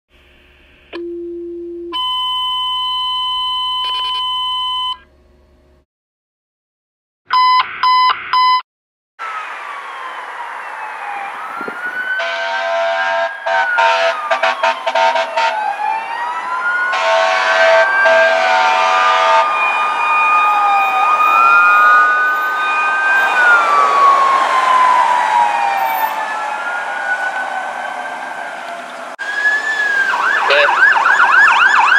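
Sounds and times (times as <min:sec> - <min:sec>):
two-tone dispatch page: 0:01.0 - 0:05.0, 0:07.3 - 0:08.6, 0:30.5 - 0:30.7
fire engine siren wailing: 0:09.2 - 0:31.9
air horn blasts: 0:12.2 - 0:15.6, 0:16.9 - 0:19.5.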